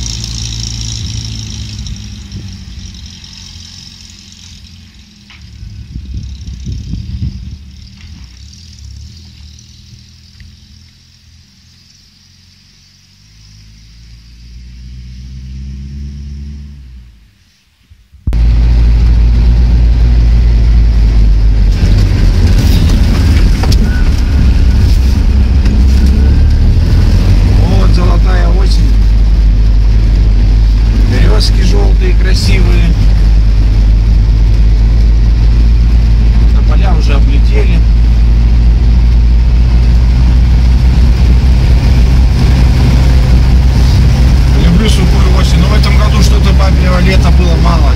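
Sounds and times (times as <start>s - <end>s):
car body rattling: 0.0s - 12.3s, 21.1s - 26.4s
car driving on bumpy track: 0.0s - 17.3s, 18.1s - 47.9s
vehicle engine droning: 0.0s - 47.9s.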